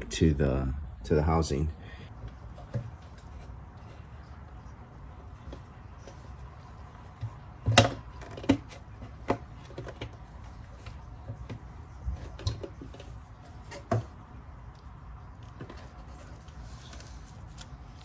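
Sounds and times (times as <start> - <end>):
plastic parts clicking and knocking: 7.2 - 11.6.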